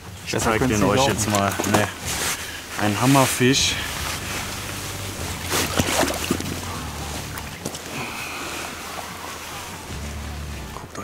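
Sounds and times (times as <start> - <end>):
rustling and handling noise: 1.0 - 11.0.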